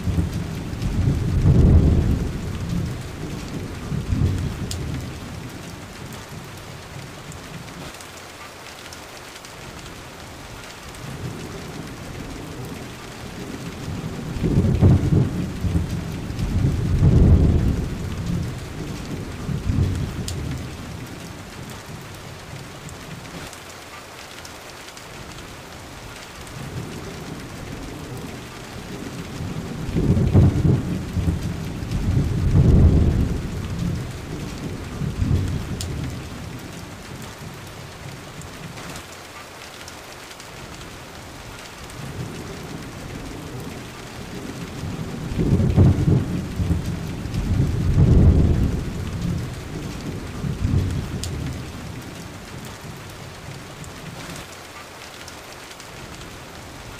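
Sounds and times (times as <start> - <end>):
low thunder rolling: 0.0 - 5.6, 11.1 - 22.0, 26.6 - 38.7, 42.0 - 54.2
heavy rain: 0.0 - 56.9.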